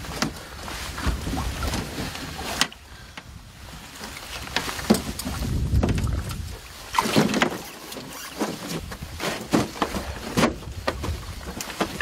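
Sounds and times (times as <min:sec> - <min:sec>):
water splashing: 0:03.9 - 0:12.0.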